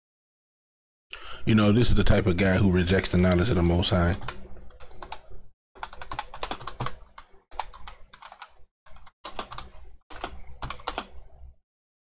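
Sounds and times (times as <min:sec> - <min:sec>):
computer keyboard typing: 0:04.1 - 0:11.3.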